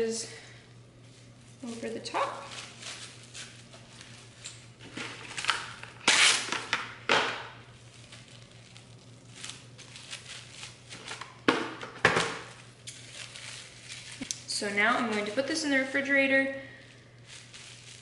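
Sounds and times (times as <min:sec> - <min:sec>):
plastic cling wrap crinkling: 0:01.0 - 0:18.0.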